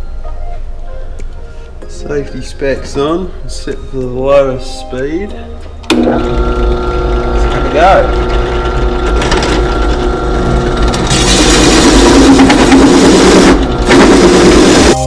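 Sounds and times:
drill press motor hum: 0:05.9 - 0:15.0.

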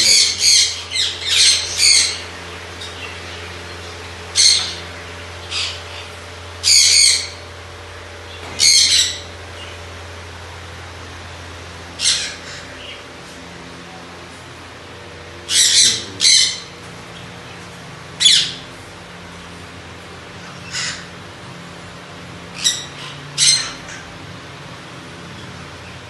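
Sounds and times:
parrots squawking: 0:00.0 - 0:10.0, 0:11.8 - 0:13.2, 0:15.3 - 0:17.4, 0:18.1 - 0:18.8, 0:20.2 - 0:21.6, 0:22.2 - 0:24.4.

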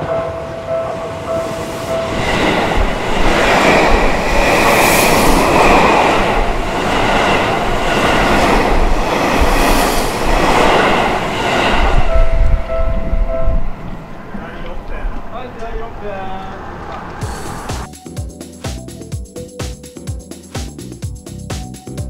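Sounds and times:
level crossing warning bell: 0:00.0 - 0:04.7, 0:11.5 - 0:14.4
train passing at speed: 0:00.0 - 0:17.9.

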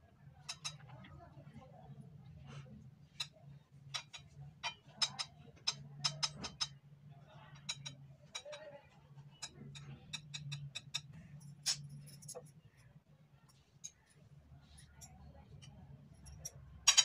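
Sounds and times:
metal spoon tapping ceramic plate: 0:16.2 - 0:17.0.

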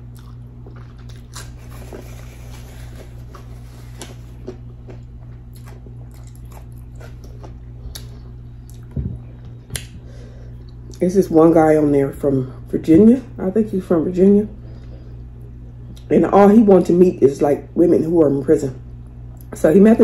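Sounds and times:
person chewing with wet smacks: 0:00.0 - 0:10.0
steady low hum: 0:00.0 - 0:20.0
soft low thump: 0:08.9 - 0:09.6.

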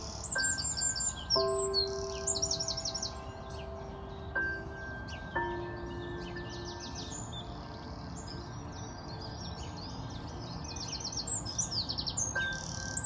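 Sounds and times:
robin singing: 0:00.0 - 0:13.0
soft bell-like note: 0:00.4 - 0:07.6.

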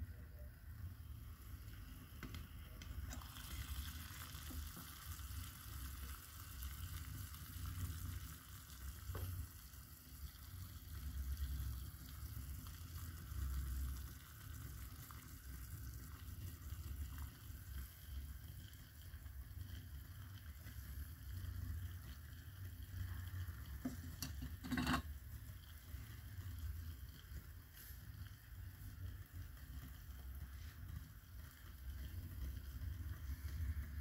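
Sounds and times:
water hissing and sizzling: 0:00.0 - 0:34.0.

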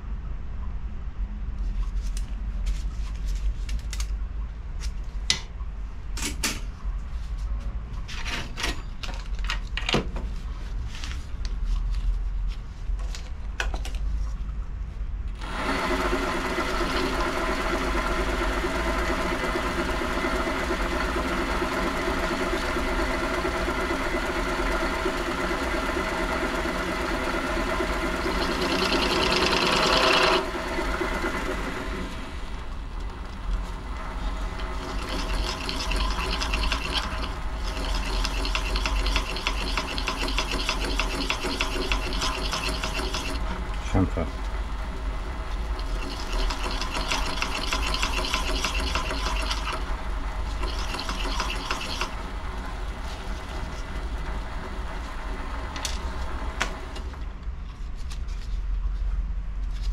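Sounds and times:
tool scraping spinning workpiece: 0:15.4 - 0:32.2, 0:34.1 - 0:54.5
lathe running with machine hum: 0:15.4 - 0:57.2.

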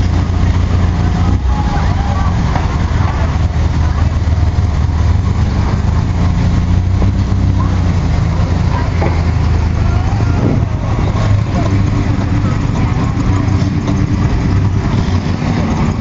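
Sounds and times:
car engines idling: 0:00.0 - 0:16.0
faint voices: 0:00.0 - 0:16.0.

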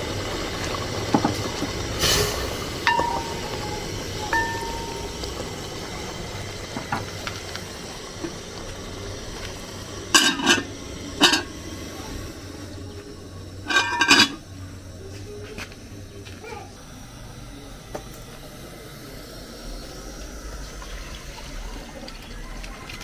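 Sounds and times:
steady background hiss: 0:00.0 - 0:21.7
metal spoon clanking on pot: 0:02.8 - 0:05.4, 0:10.1 - 0:11.5, 0:13.6 - 0:14.4.

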